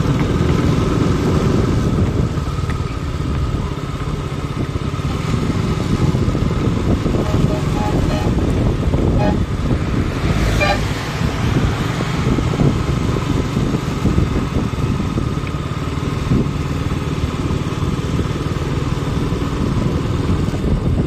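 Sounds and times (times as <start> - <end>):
vehicle engine running: 0.0 - 21.0
short high-pitched sounds: 7.2 - 9.5.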